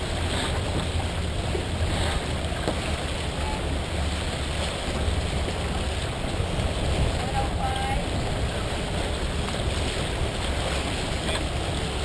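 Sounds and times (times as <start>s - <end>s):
water rushing along hull: 0.0s - 12.0s.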